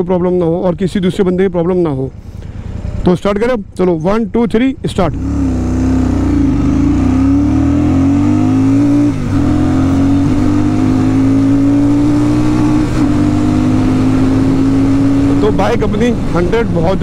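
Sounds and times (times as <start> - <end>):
motorcycle engine accelerating: 5.0 - 17.0.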